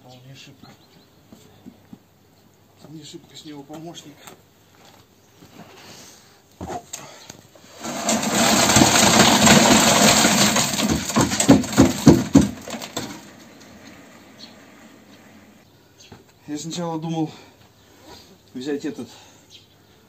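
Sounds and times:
wet concrete pouring from bucket: 0:07.7 - 0:13.8
bucket knocks: 0:07.8 - 0:13.8.

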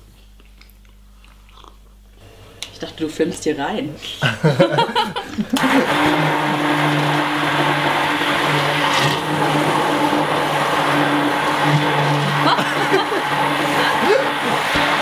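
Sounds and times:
stick blender motor hum: 0:05.4 - 0:15.0.

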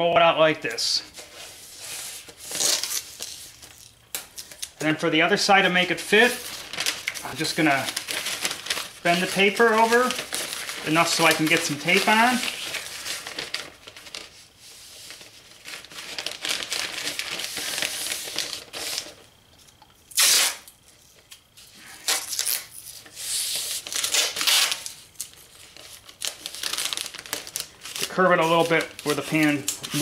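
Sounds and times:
newspaper crinkling and rustling: 0:00.7 - 0:19.6, 0:20.8 - 0:30.0
masking tape tearing off roll: 0:01.2 - 0:04.9, 0:20.1 - 0:20.8, 0:22.0 - 0:30.0.

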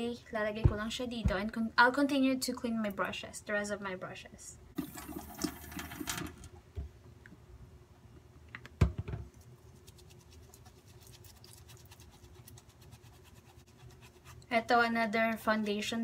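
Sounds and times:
brush scrubbing on silicone: 0:09.4 - 0:16.0.

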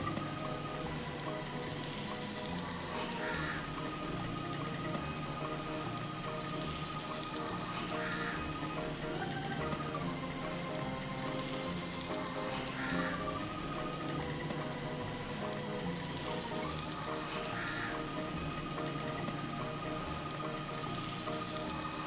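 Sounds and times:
background music: 0:00.0 - 0:22.0
chicken sizzling in oil: 0:00.0 - 0:22.0.

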